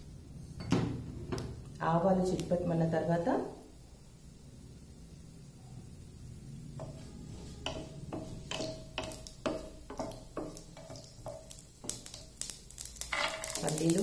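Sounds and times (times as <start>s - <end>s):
seeds sizzling in oil: 0.0s - 14.0s
wooden spatula scraping a metal pan: 6.8s - 11.5s.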